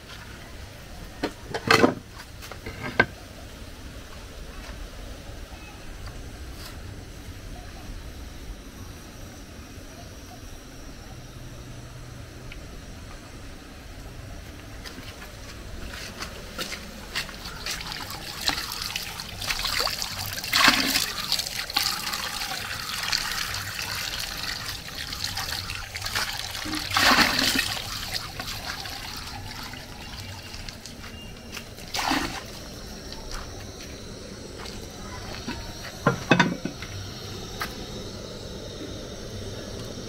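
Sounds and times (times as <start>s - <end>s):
water sloshing and trickling: 15.2s - 33.6s
water splashes: 16.6s - 33.2s.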